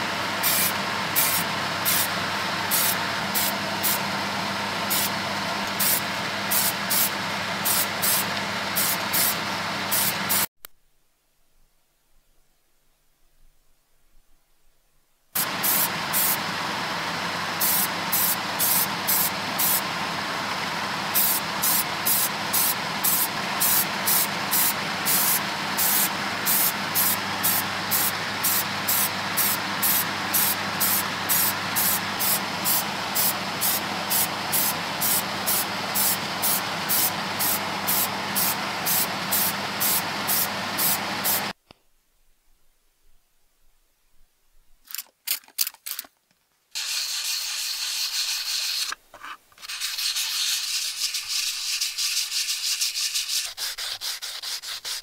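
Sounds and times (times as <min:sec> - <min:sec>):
extraction fan hiss and hum: 0:00.0 - 0:44.8
spray can spraying: 0:00.4 - 0:02.1, 0:02.7 - 0:04.0, 0:04.9 - 0:05.1, 0:05.7 - 0:10.5, 0:15.4 - 0:16.4, 0:17.6 - 0:19.8, 0:21.1 - 0:41.6, 0:46.8 - 0:49.0, 0:49.6 - 0:55.0.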